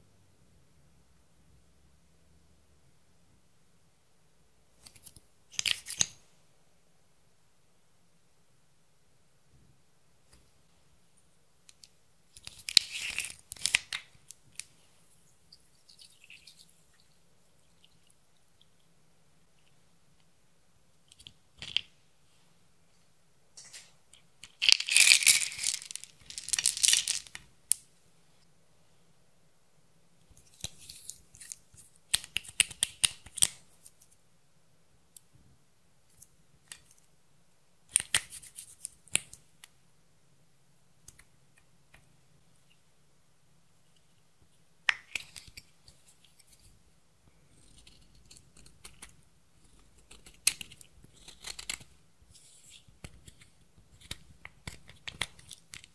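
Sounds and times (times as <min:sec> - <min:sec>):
plastic beads clicking and rattling: 0:24.4 - 0:27.8.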